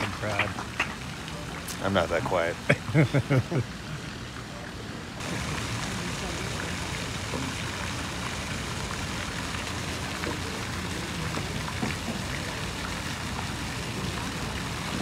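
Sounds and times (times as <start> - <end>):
rushing hiss of water: 5.2 - 15.0.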